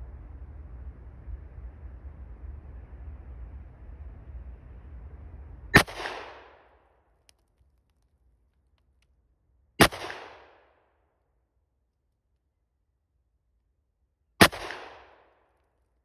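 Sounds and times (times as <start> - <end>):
shotgun shots with echo: 5.8 - 6.7, 9.8 - 10.7, 14.4 - 15.3.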